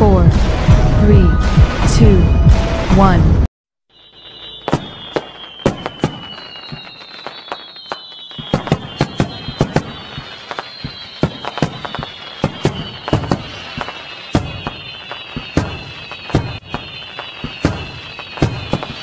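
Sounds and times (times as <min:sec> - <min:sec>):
high whistles gliding downward: 0:00.7 - 0:02.9, 0:03.9 - 0:19.0
fireworks banging: 0:03.9 - 0:19.0.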